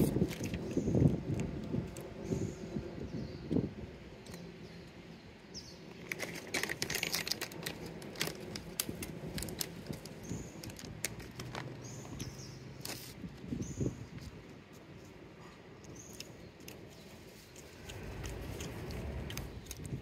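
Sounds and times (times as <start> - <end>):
cat chewing and licking: 15.6 - 20.0.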